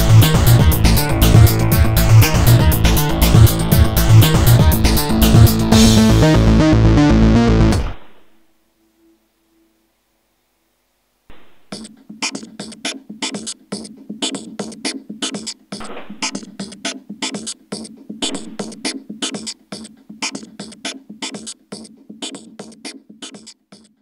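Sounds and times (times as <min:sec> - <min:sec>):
fast percussive beat: 0:00.0 - 0:06.3, 0:11.3 - 0:24.0.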